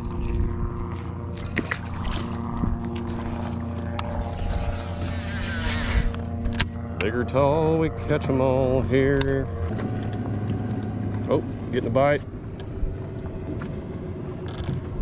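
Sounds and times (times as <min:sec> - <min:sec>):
fishing tackle clicks: 0:00.0 - 0:02.0
electric trolling motor humming: 0:00.0 - 0:15.0.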